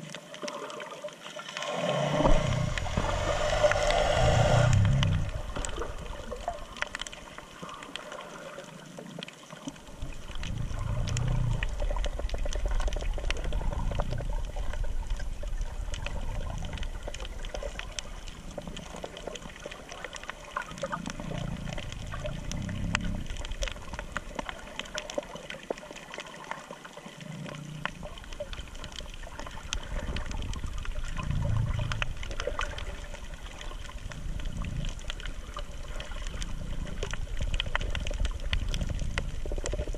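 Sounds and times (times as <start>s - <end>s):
crackling clicks: 0.0s - 39.9s
underwater watery hiss: 1.2s - 6.5s
low muffled surges: 2.1s - 5.9s.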